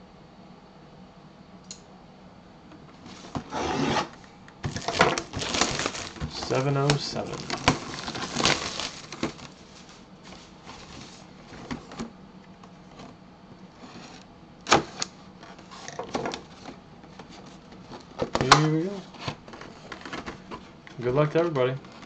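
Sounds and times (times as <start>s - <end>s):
plastic shrink wrap crinkling: 4.6s - 11.2s.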